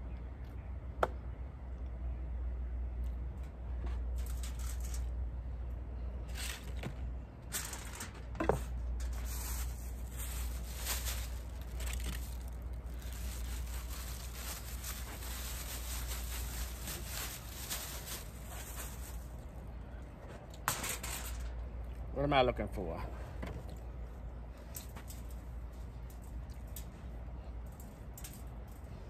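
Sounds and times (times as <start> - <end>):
steady low hum: 0.0 - 29.0
plastic bag crinkling: 9.0 - 19.5.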